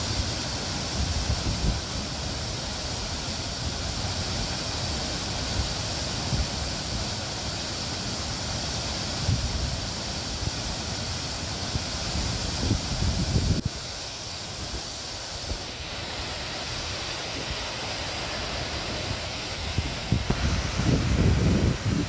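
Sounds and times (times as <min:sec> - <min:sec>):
wind rumble on microphone: 0:00.0 - 0:02.2, 0:09.1 - 0:10.6, 0:11.6 - 0:13.8, 0:18.8 - 0:22.0
waterfall rushing: 0:00.0 - 0:22.0.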